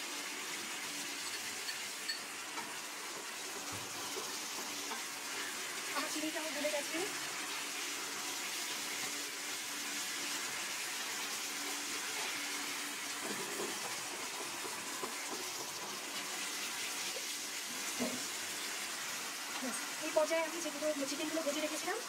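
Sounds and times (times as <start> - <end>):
sauce sizzling in a hot pan: 0.0 - 22.0
wooden spoon stirring: 13.1 - 18.3.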